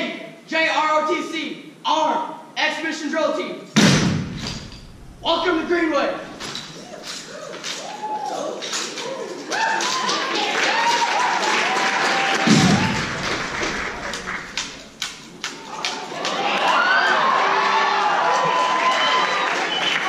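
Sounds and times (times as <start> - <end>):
heavy thud on stage: 3.8 - 5.2, 12.4 - 13.8
hands slapping rifles: 12.5 - 16.0.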